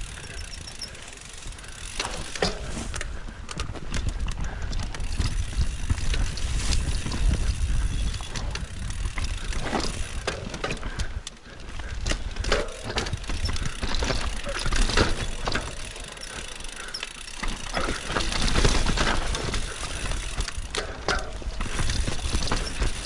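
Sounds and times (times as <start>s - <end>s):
bike tyres and frame rattling: 0.0s - 23.0s
wind rumble on microphone: 2.9s - 11.2s.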